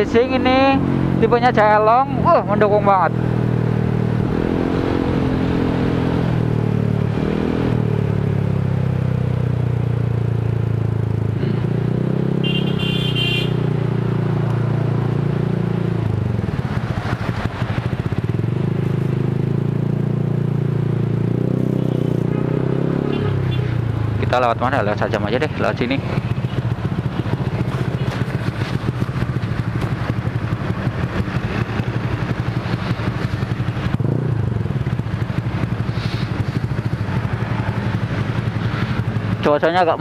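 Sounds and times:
scooter engine revving: 0:15.6 - 0:24.2, 0:25.3 - 0:40.0.

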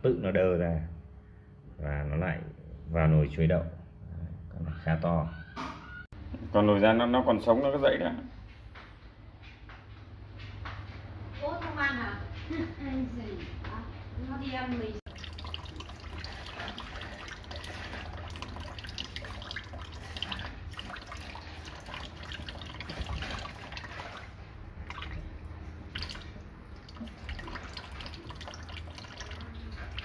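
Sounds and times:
tap water trickling into a sink: 0:15.1 - 0:30.0
water splashing and dripping: 0:15.1 - 0:30.0.

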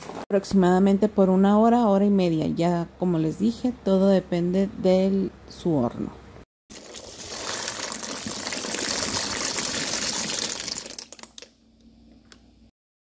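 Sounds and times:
water boiling and bubbling: 0:06.7 - 0:11.5.

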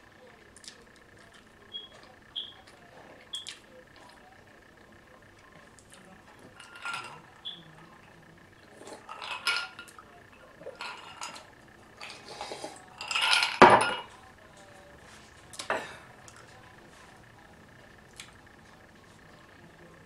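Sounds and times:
glass being handled: 0:06.4 - 0:07.7, 0:08.7 - 0:10.0, 0:10.6 - 0:14.2.

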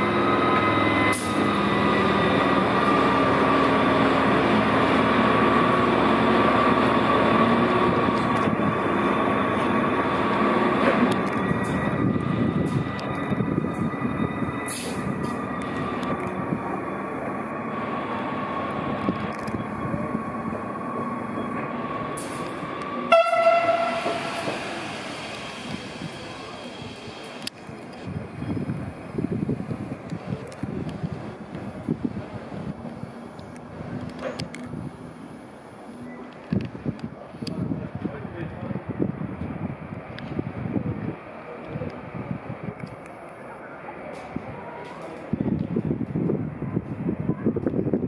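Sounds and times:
electric locomotive whine: 0:00.0 - 0:48.0
rail rumble: 0:00.0 - 0:48.0
train horn blast: 0:23.0 - 0:24.9.

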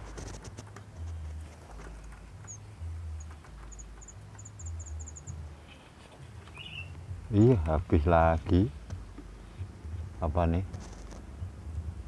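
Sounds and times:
fingers clicking on cage: 0:00.0 - 0:05.4
young birds begging chirps: 0:01.8 - 0:07.0.

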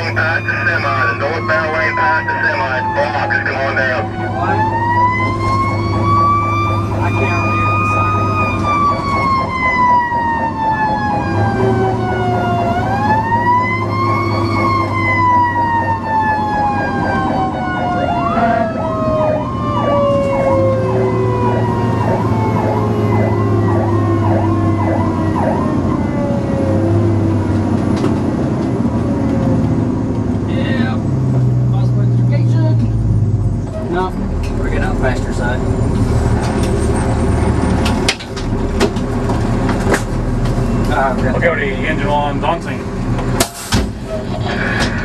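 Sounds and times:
yelping siren: 0:00.0 - 0:27.4
siren wailing: 0:00.0 - 0:27.6
diesel engine drone: 0:00.0 - 0:45.0.

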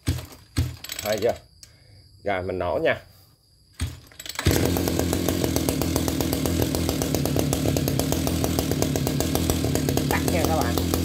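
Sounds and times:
two-stroke engine idling: 0:04.2 - 0:11.0.

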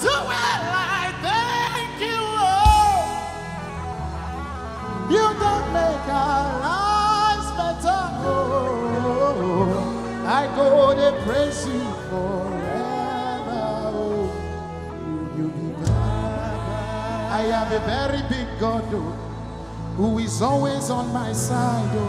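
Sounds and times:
keyboard chords and bass: 0:00.0 - 0:22.0
person singing with vibrato: 0:04.9 - 0:19.1.

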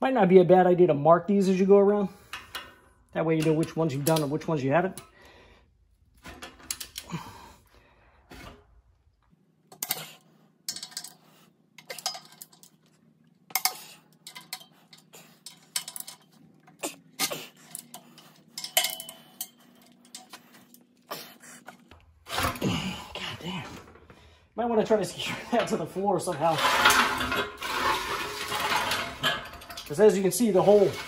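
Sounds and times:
metallic clinks and knocks: 0:10.7 - 0:11.2, 0:11.8 - 0:12.9, 0:13.5 - 0:16.8, 0:17.5 - 0:20.9.

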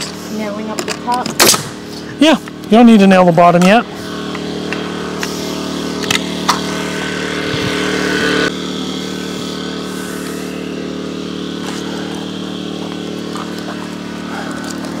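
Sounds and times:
air compressor humming: 0:00.0 - 0:15.0
nail gun firing: 0:01.2 - 0:01.8.

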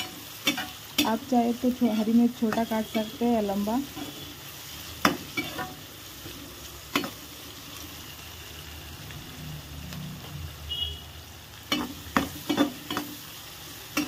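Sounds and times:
vegetables sizzling in hot oil: 0:00.0 - 0:14.0
spatula knocking pan: 0:11.7 - 0:13.2.

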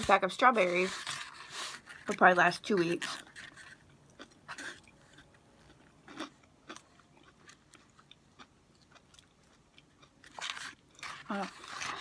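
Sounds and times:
person chewing food: 0:03.0 - 0:12.0.

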